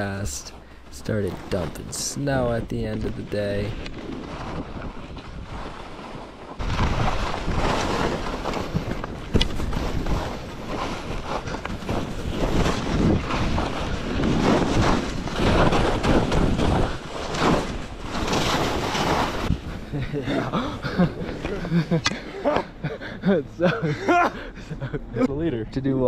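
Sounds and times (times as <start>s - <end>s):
skis scraping over snow: 0.0s - 21.9s
wind buffeting microphone: 2.6s - 18.2s.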